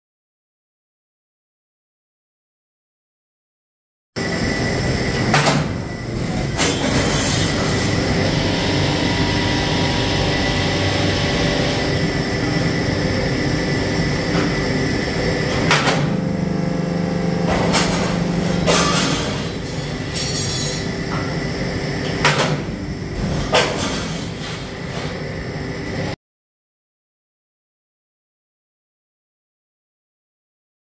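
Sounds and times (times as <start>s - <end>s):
hydraulic pump motor humming: 4.2s - 20.2s.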